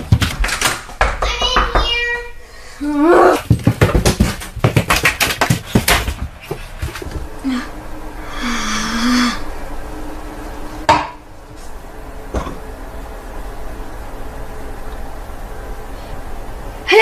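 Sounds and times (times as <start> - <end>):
running footsteps on wooden floor: 0.0 - 2.1, 3.1 - 7.3.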